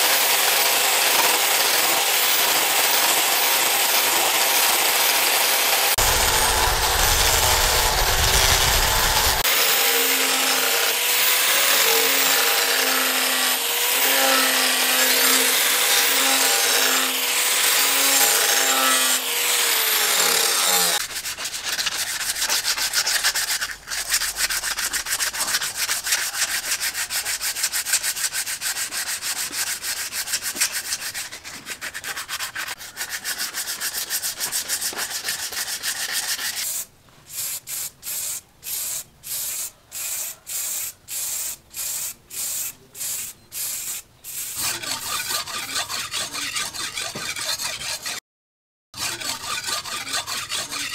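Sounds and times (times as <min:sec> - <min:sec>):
angle grinder grinding steel blade: 0:00.0 - 0:21.0, 0:44.4 - 0:48.2, 0:49.0 - 0:50.9
aerosol spray can bursts: 0:36.7 - 0:44.6
blade stroked on sharpening stone: 0:38.2 - 0:48.2, 0:49.0 - 0:50.9.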